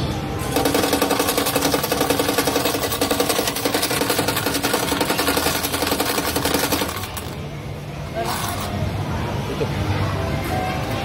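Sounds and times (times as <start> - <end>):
dispenser mechanism humming: 0.0 - 9.5
tokens clattering into plastic bowl: 0.5 - 7.4.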